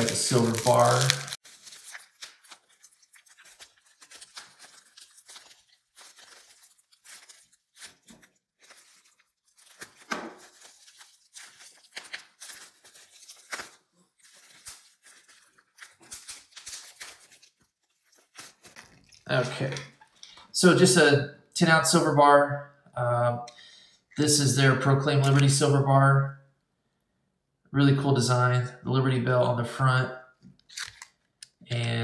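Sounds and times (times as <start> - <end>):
bubble wrap crinkling and tearing: 0.0 - 20.2, 30.6 - 31.6.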